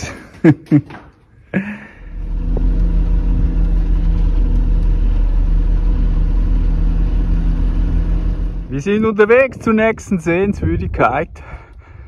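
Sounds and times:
truck diesel engine rumbling: 1.7 - 10.7.

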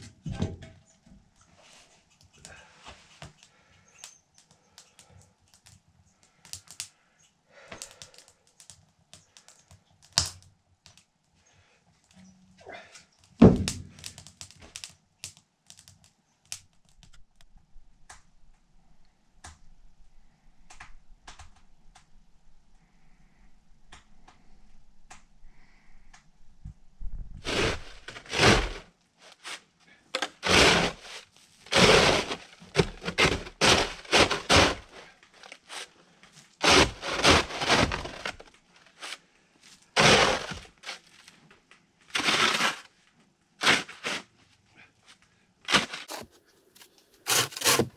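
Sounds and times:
faint fire crackles: 1.3 - 12.2, 13.0 - 19.6
snow shovel scraping snow: 27.4 - 29.6, 30.2 - 35.1, 36.6 - 39.2, 40.0 - 41.0, 42.2 - 42.9, 43.6 - 44.3, 45.7 - 46.4, 47.2 - 47.9.

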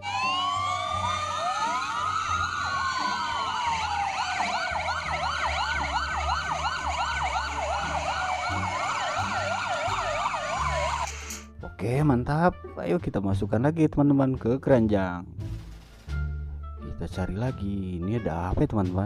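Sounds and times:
fast yelping siren: 0.0 - 11.2
wailing fire engine sirens: 0.0 - 11.4.

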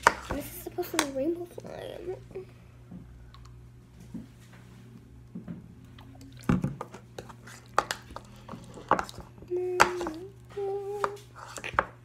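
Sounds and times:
spoon scraping in plastic bowl: 6.7 - 9.3, 11.0 - 11.9.

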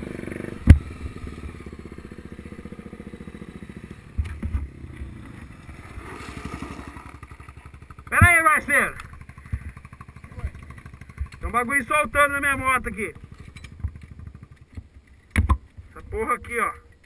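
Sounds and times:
dirt bike engine puttering: 0.0 - 17.0
bike jolting over bumps: 3.2 - 16.2.

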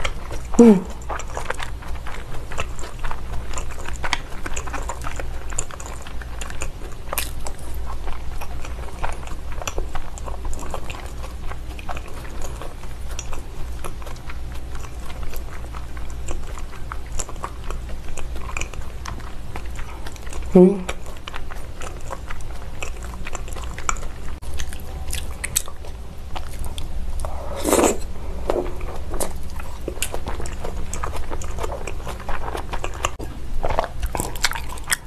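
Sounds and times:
close chewing with mouth clicks: 0.0 - 35.0
steady low hum: 0.0 - 35.0.

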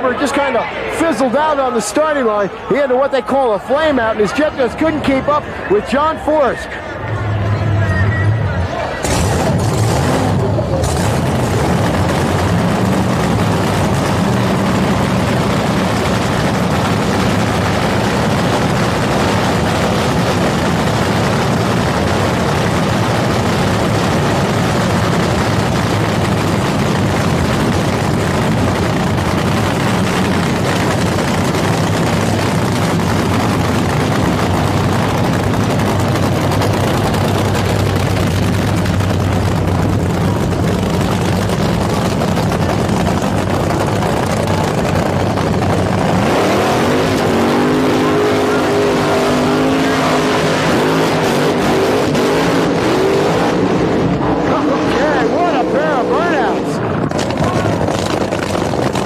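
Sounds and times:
funny car engine idling: 5.0 - 46.3.

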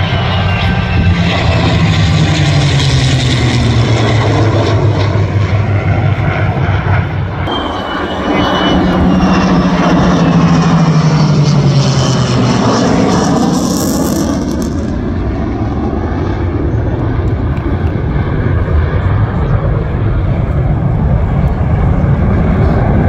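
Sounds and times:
jet whine: 0.0 - 23.0
propeller engine drone overhead: 0.0 - 23.0.

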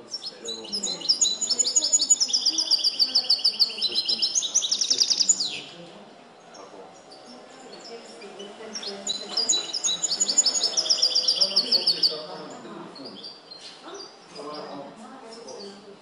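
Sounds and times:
goldfinch trilling song: 0.1 - 5.7, 7.1 - 12.4.

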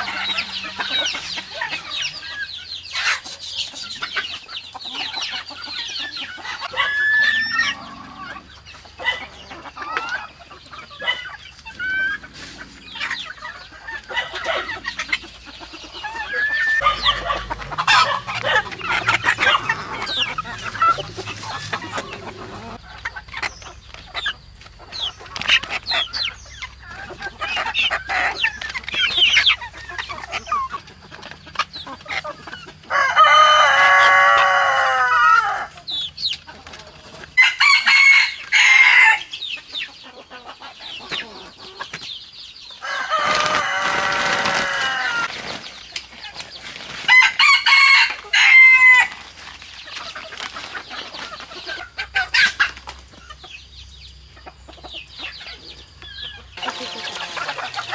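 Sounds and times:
chickens clucking and chirping: 0.0 - 57.9
rooster crowing: 16.4 - 21.0, 32.9 - 35.7, 37.4 - 39.3, 42.8 - 45.3, 47.1 - 49.1.

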